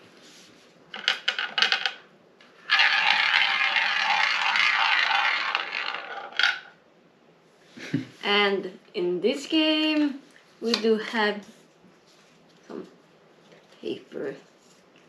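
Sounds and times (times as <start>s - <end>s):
ball rattling around wheel: 0.9s - 6.8s
roulette wheel clicks: 2.7s - 6.7s.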